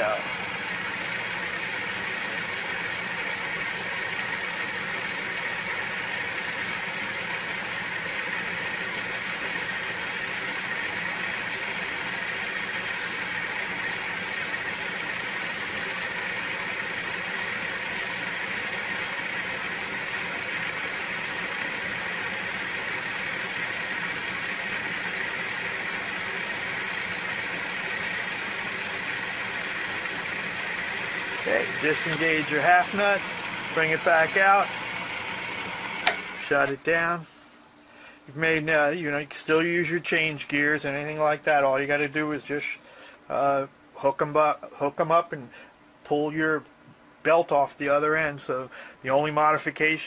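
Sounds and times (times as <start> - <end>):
high-pitched whine: 0.0 - 5.6, 8.8 - 34.7
lathe running: 0.0 - 36.7.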